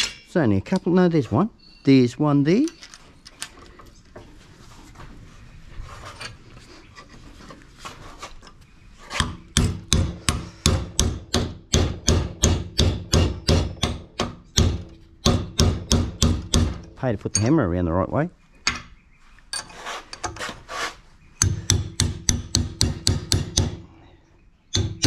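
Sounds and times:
handling and scraping: 2.5 - 9.5, 18.5 - 21.5
hammer tapping metal: 9.2 - 17.6, 21.4 - 23.8.

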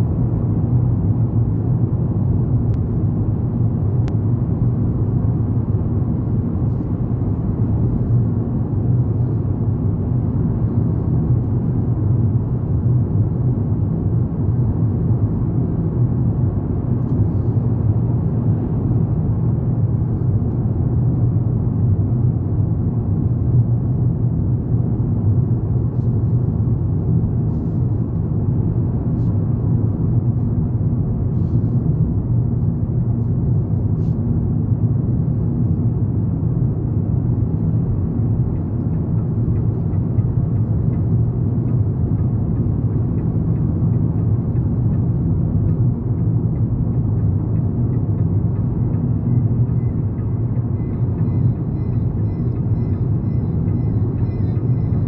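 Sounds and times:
car driving through tunnel: 0.0 - 55.0.

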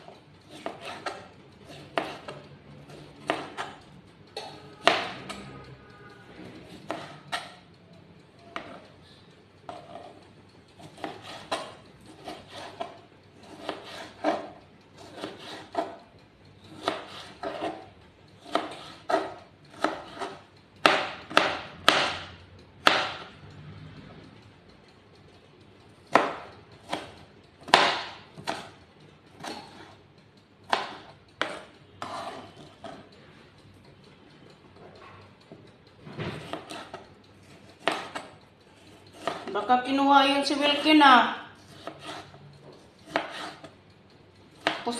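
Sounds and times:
knife chopping on plastic board: 0.0 - 3.8, 4.4 - 5.5, 6.6 - 7.6, 8.5 - 8.8, 10.8 - 16.0, 16.7 - 23.3, 26.1 - 28.8, 29.4 - 30.0, 30.7 - 33.0, 36.1 - 39.6, 41.6 - 43.7, 44.6 - 44.9.

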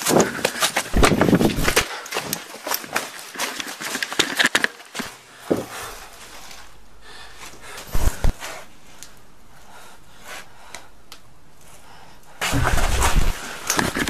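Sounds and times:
man breathing heavily: 0.0 - 2.8, 5.0 - 13.8.

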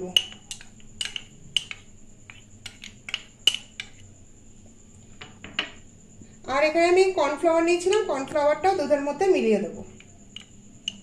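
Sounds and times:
spoon clinking against glass bowls: 0.1 - 1.9.

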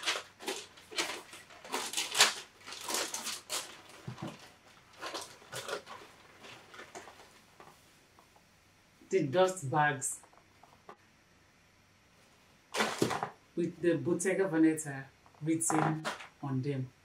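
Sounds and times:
tissue paper rustling: 0.0 - 8.0.

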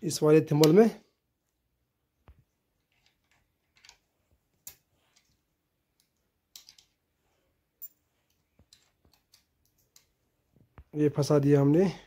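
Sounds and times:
faint metal clicks: 7.8 - 10.9.

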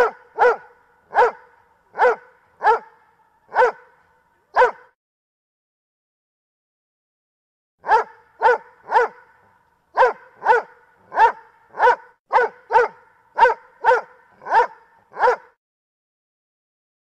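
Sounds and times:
dog barking: 0.0 - 5.0, 7.8 - 15.6.

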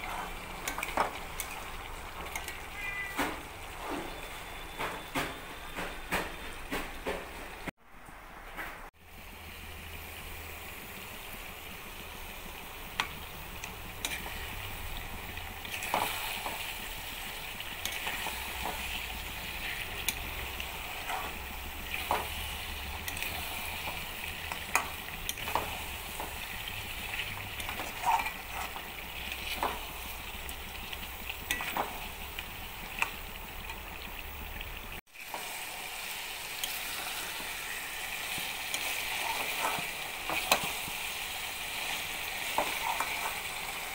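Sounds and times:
curry sizzling in a pot: 0.0 - 5.0, 9.0 - 43.9
spatula scraping a pot: 26.4 - 29.9, 42.4 - 43.5.

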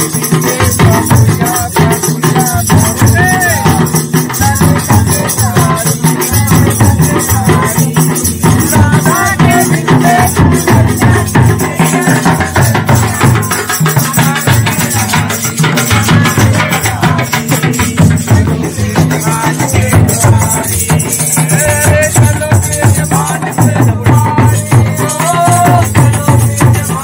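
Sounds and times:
jingling rattle: 0.0 - 27.0
kettledrums beaten fast: 0.0 - 27.0.

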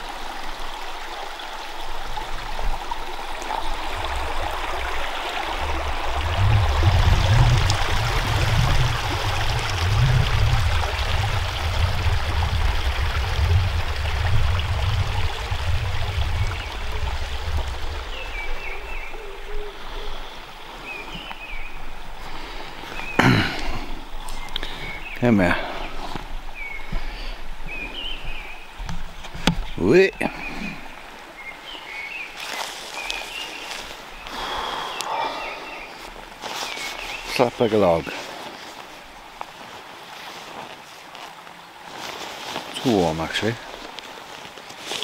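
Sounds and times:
stream babbling over stones: 0.0 - 45.0
low rumble on microphone: 3.6 - 20.3.

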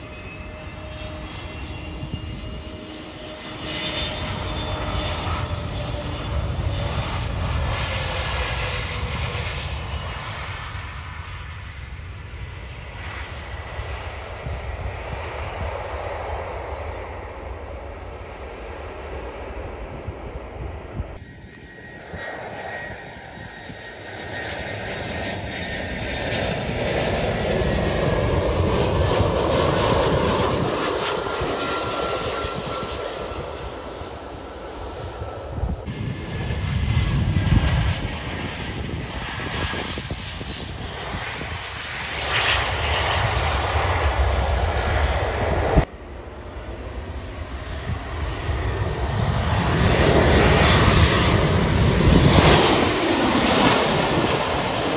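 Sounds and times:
jet airliner engines: 0.0 - 54.9
plane approaching to land: 0.0 - 54.9.

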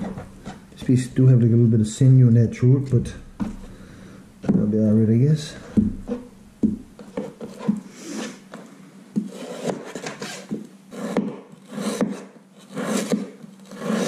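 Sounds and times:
knife sawing through meat: 9.3 - 14.0.

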